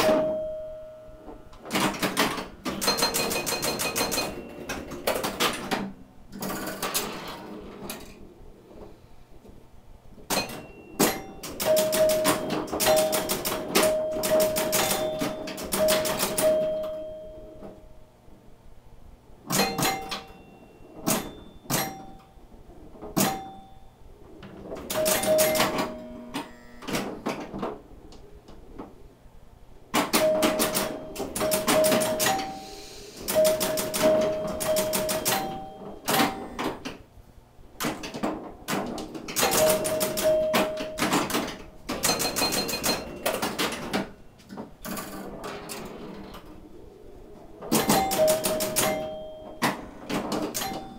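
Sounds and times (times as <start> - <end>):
pinball bell chimes: 0.0 - 5.7, 10.3 - 18.0, 19.5 - 22.4, 23.2 - 24.0, 24.8 - 26.8, 30.1 - 36.9, 39.4 - 45.4, 47.7 - 50.9
pinball machine mechanical clacking: 0.0 - 8.9, 10.2 - 18.1, 19.3 - 29.1, 29.8 - 37.2, 37.8 - 50.9.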